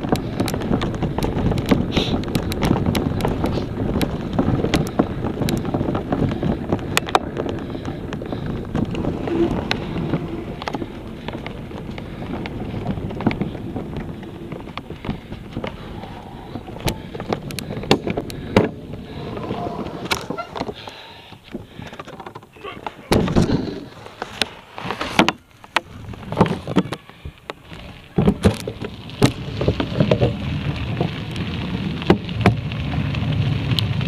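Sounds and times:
wind on microphone: 0.0 - 21.8
camera rumbling and rattling: 0.0 - 34.0.

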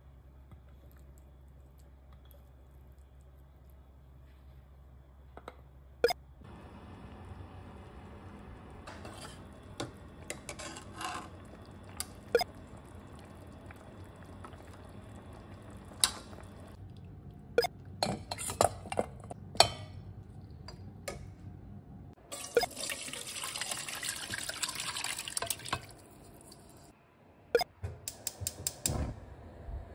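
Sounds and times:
broth simmering: 6.4 - 21.2, 22.2 - 26.9.

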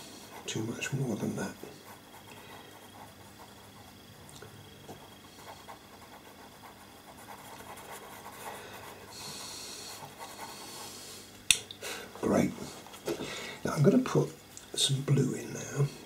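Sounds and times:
pencil scratching on paper: 0.0 - 4.0, 5.0 - 11.0.

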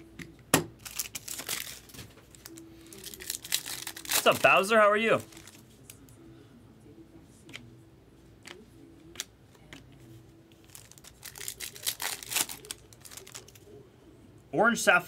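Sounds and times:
foil pack crinkling and tearing: 0.8 - 5.6, 10.6 - 13.7.

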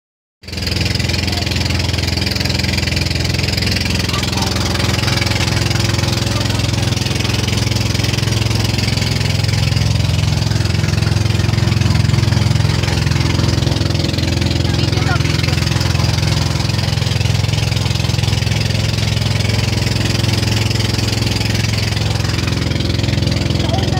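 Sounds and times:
boat engine droning: 0.4 - 23.9.

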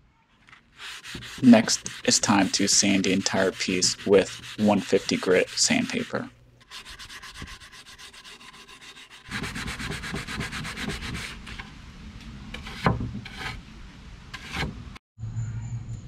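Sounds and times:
bristle brush sweeping: 0.8 - 8.9
sandpaper rubbing on wood: 0.8 - 11.6.

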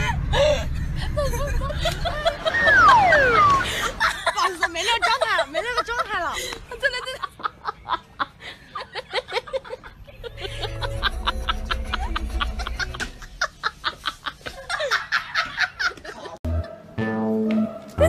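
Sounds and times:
person laughing: 0.0 - 5.2, 6.9 - 16.4
background music: 10.2 - 13.3, 16.5 - 18.0.

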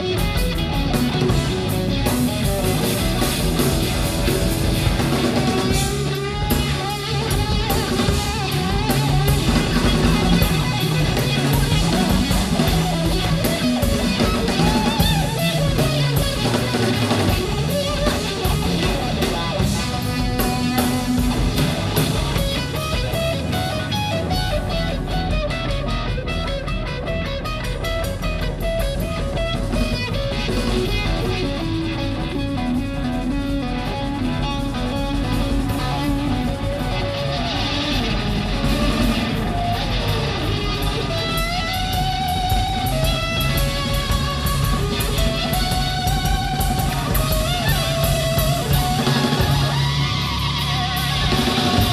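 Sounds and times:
drum kit with cymbals: 0.0 - 51.9
electric guitar: 0.0 - 51.9.

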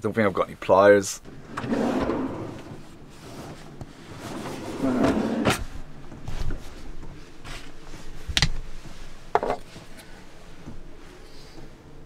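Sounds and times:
drawer being handled: 1.3 - 6.7.

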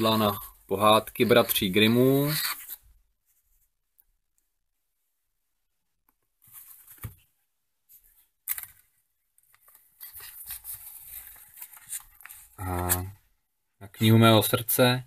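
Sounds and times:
pages rustling and turning: 6.4 - 7.3, 7.9 - 13.2.

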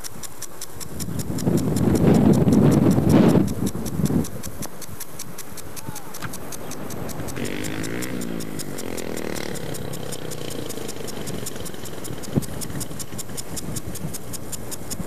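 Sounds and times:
fast ticking: 0.0 - 15.0
engine running: 5.1 - 15.0.

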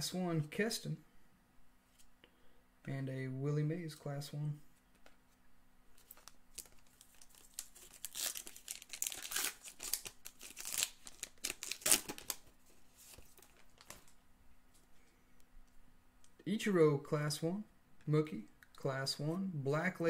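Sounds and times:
foil wrapper crinkling: 6.0 - 14.2.

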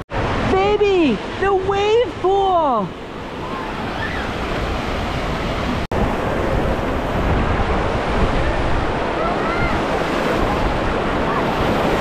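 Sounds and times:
water rushing and washing: 0.0 - 12.0
wind noise on microphone: 3.3 - 12.0.

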